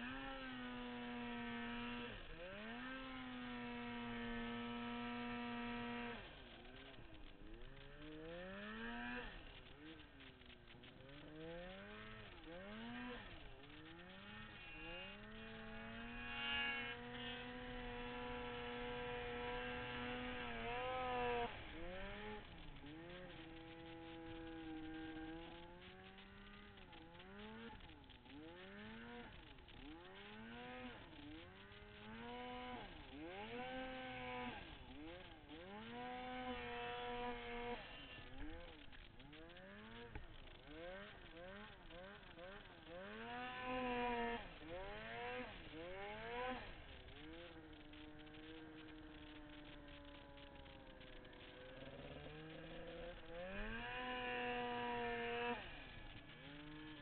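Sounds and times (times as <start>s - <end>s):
snowmobile engine revving: 0.0s - 57.0s.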